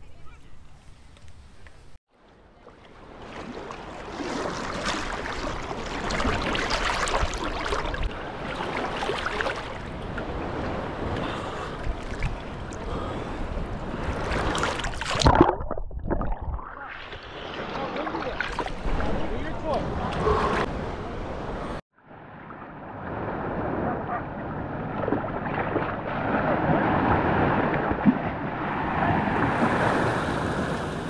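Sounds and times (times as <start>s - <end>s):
water splashing and sloshing: 2.1s - 31.0s
loud splash: 3.3s - 9.9s, 14.2s - 19.5s.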